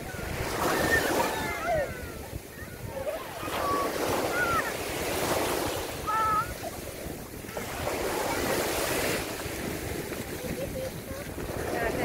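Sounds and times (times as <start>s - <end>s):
small waves breaking on sand: 0.0s - 12.0s
child calling: 0.7s - 4.9s, 6.0s - 6.7s.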